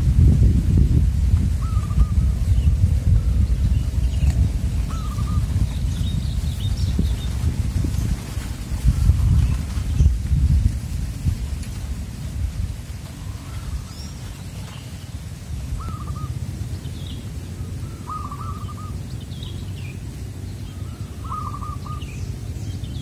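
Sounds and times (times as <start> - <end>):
steady low rumble: 0.0 - 23.0
dove cooing: 1.6 - 2.4, 4.8 - 6.1, 15.7 - 16.4, 17.4 - 19.1, 20.7 - 22.5
small birds chirping: 1.6 - 10.4, 13.1 - 23.0.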